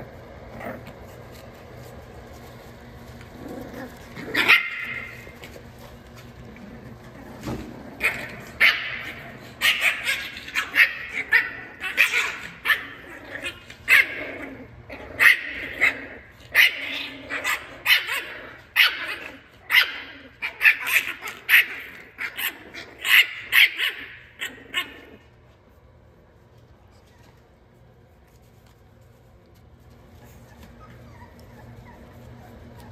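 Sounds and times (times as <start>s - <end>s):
puppies barking and yipping: 3.2s - 6.3s, 7.4s - 25.3s, 30.0s - 32.9s.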